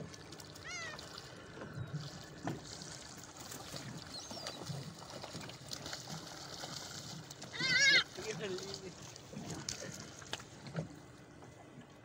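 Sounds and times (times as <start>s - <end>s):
water lapping at boat: 0.0s - 12.0s
gull calling: 0.6s - 1.1s, 7.5s - 8.1s.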